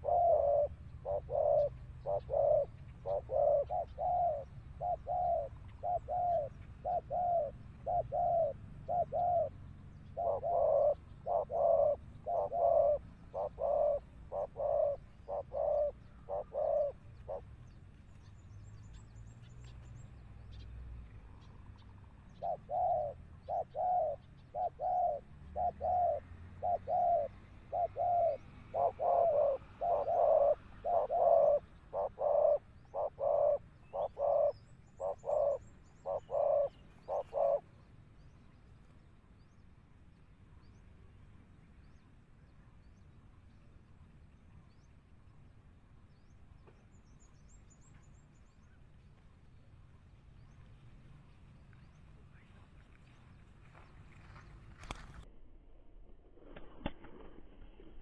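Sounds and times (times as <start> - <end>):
doves cooing: 0.0 - 17.6, 22.3 - 37.7.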